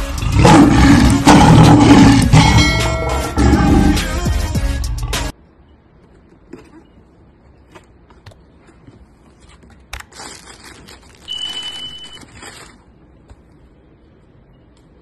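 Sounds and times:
paper rustling: 7.6 - 13.4
high electronic beep: 11.3 - 12.2.

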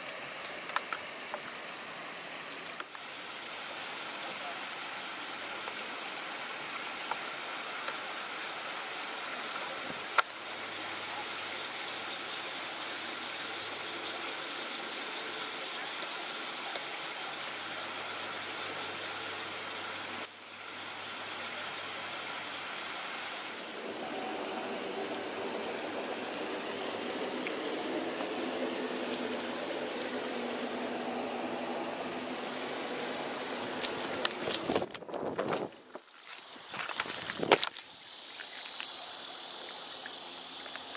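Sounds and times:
water rushing over weir: 2.8 - 34.8.

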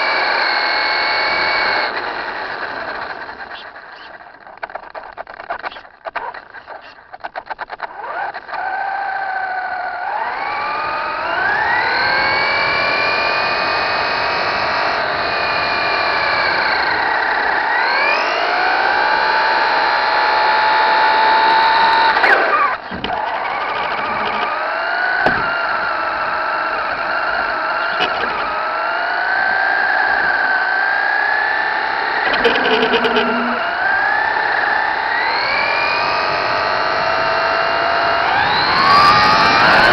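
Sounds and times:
toy truck electric motor whining: 0.0 - 39.9
rapid clicks: 1.8 - 9.7, 21.4 - 35.4
sharp knock: 25.2 - 25.5.

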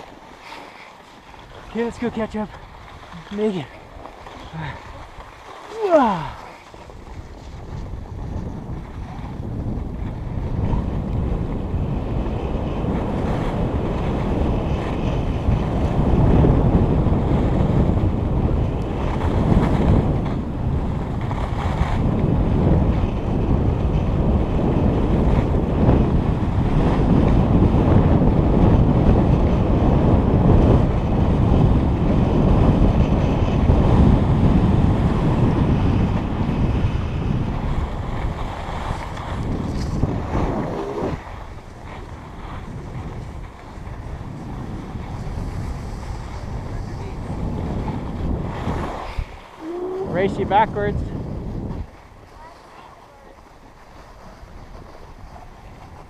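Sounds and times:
skis sliding over packed snow: 0.0 - 9.5, 37.0 - 50.1, 51.9 - 56.0
wind rushing over microphone: 1.3 - 56.0.

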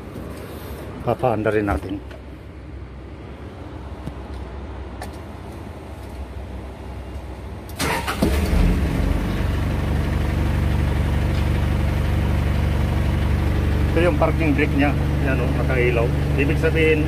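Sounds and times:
engine starter cranking: 7.7 - 9.1
engine idling: 7.8 - 17.0.

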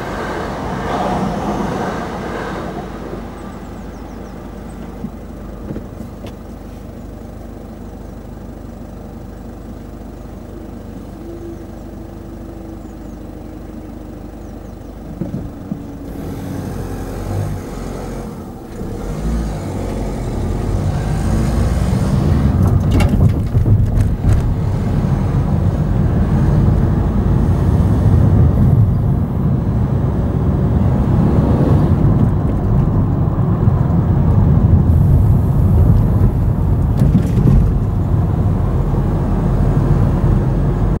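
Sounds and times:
car engine and road noise: 0.0 - 41.0
wheels knocking over rails: 22.5 - 24.7.

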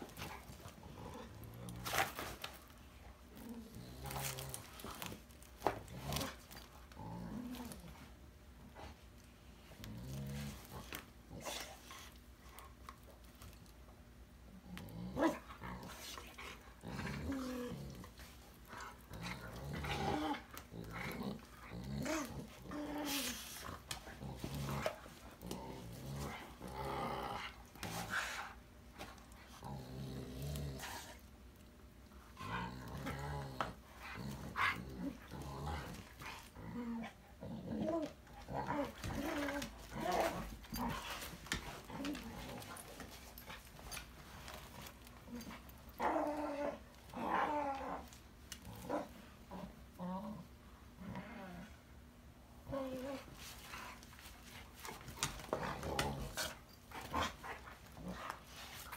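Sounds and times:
dogs growling playfully: 0.0 - 13.7, 14.4 - 58.9
dogs scuffling: 37.9 - 46.4, 53.1 - 58.9.

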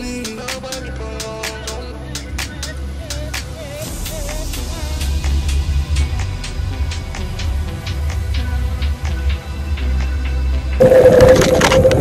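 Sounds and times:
melody over percussive beat: 10.8 - 12.0.

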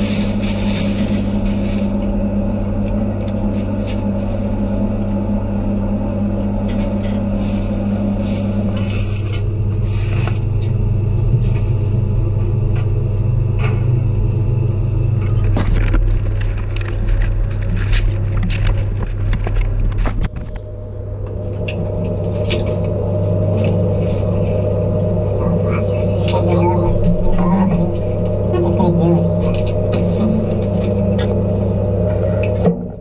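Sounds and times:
low machinery hum: 0.0 - 33.0.

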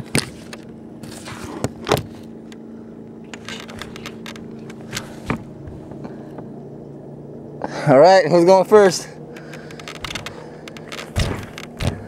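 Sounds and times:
motorboat engine idling: 0.0 - 12.0
sharp knocks and rattles: 9.4 - 12.0.

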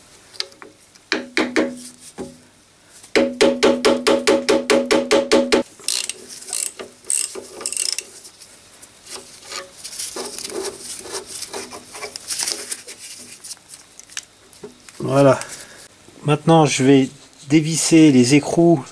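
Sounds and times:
ratchet wrench clicking: 5.8 - 8.1.

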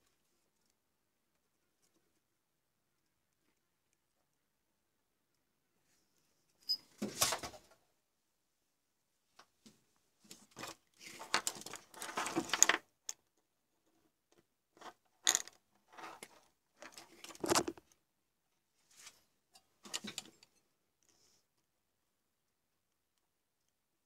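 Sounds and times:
plastic parts clicking and knocking: 10.6 - 13.3, 14.8 - 18.0
rustling of handled parts: 14.8 - 18.0.

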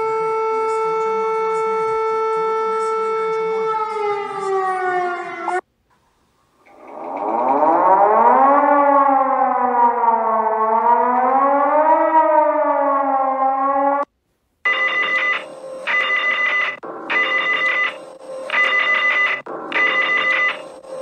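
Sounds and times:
siren wailing: 0.0 - 5.7, 6.6 - 14.1, 14.7 - 21.0
telephone bell ringing: 14.7 - 20.7.

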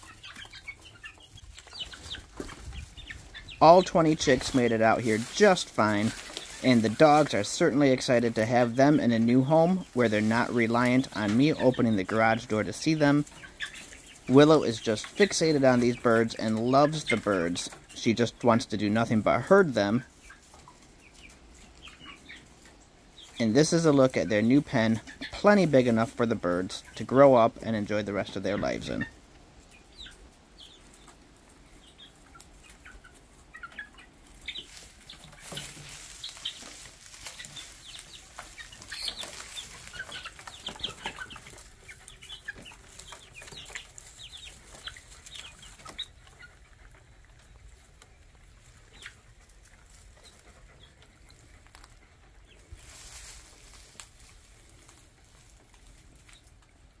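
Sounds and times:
chicks peeping and chirping: 0.0 - 57.0.

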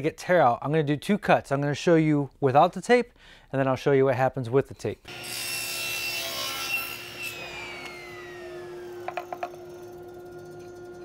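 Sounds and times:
saw motor hum and whine: 5.1 - 11.0
table saw cutting plywood: 5.1 - 11.0.

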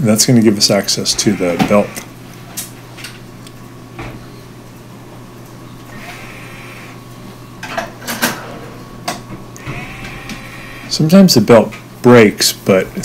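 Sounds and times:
cordless drill whirring: 1.1 - 2.1, 5.9 - 7.0, 9.6 - 11.0.

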